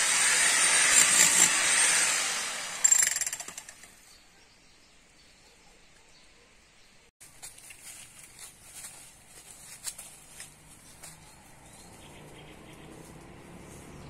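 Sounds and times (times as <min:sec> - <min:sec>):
twigs snapping: 0:07.2 - 0:11.3
footsteps rustling through undergrowth: 0:07.2 - 0:13.4.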